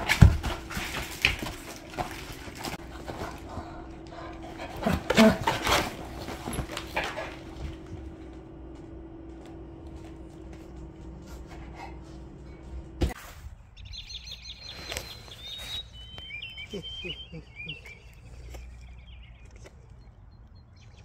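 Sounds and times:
plastic pool rustling and bumping: 0.0 - 3.7.

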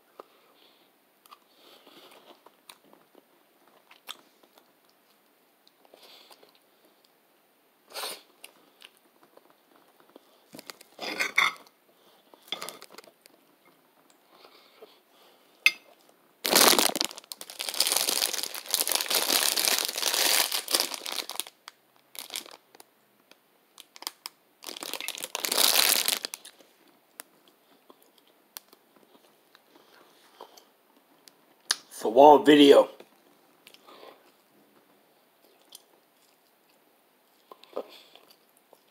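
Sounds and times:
food wrapper crinkling: 10.5 - 11.0, 12.5 - 13.4, 16.4 - 27.3.

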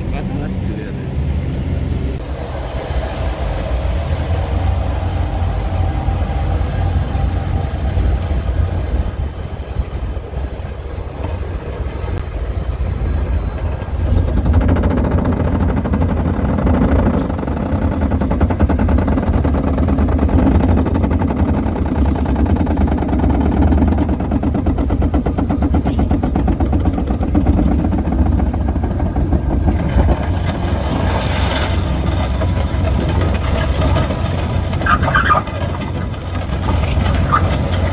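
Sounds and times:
drilling rig running: 0.0 - 37.9.

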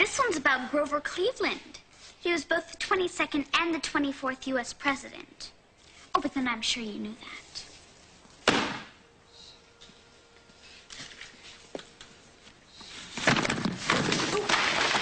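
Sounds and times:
book slapped onto stack: 8.4 - 8.9
books toppling and clattering: 13.0 - 15.0.

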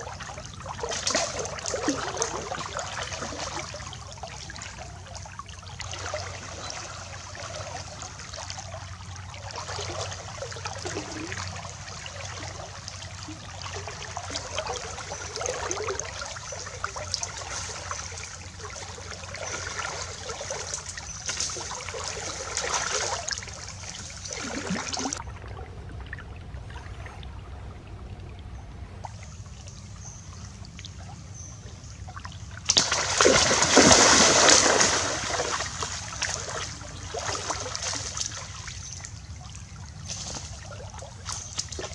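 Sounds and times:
stream water trickling: 0.0 - 41.9
loud water splash: 32.6 - 38.6.

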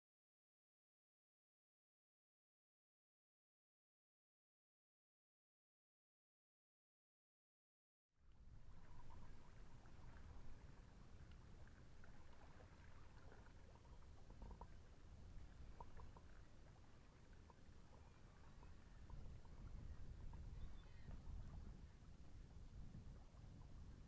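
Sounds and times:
wind rumble on microphone: 8.3 - 24.0.

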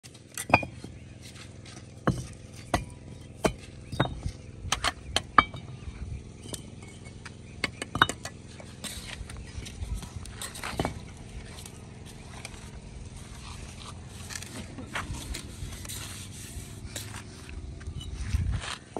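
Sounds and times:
trowel clinking on bricks: 0.3 - 1.0, 6.4 - 11.0.

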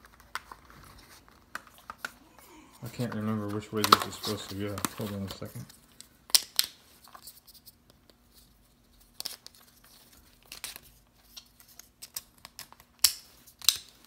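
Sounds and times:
plastic rustling: 0.0 - 7.3.

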